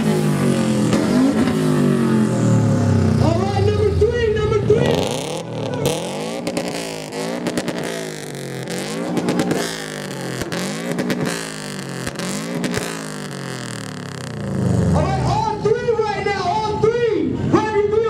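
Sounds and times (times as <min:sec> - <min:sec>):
car engines revving: 0:00.0 - 0:17.5
exhaust cracks: 0:04.7 - 0:15.6.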